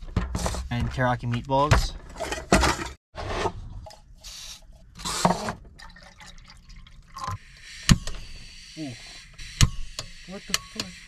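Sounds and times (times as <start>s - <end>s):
water pouring: 5.6s - 7.4s.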